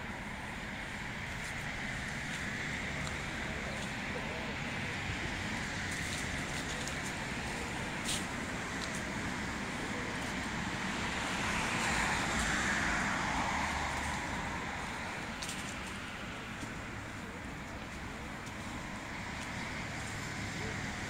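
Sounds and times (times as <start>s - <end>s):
street traffic: 0.0s - 21.0s
vehicle passing: 9.2s - 17.4s.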